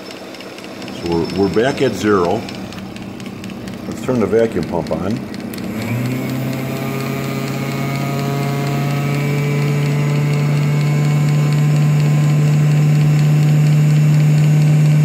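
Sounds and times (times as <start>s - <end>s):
distributor spinning whirr: 0.0s - 15.0s
vacuum pump humming: 0.0s - 15.0s.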